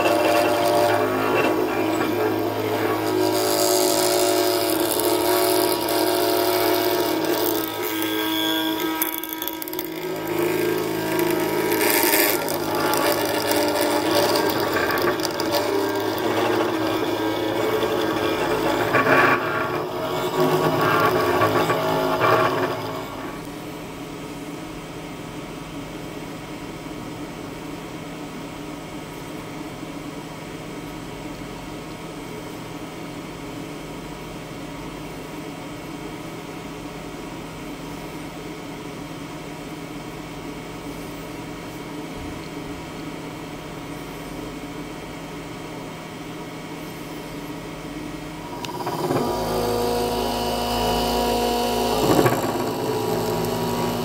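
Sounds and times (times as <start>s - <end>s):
tool carving foam: 0.0s - 23.5s, 48.4s - 54.0s
electric machine hum: 0.0s - 24.0s, 46.6s - 54.0s.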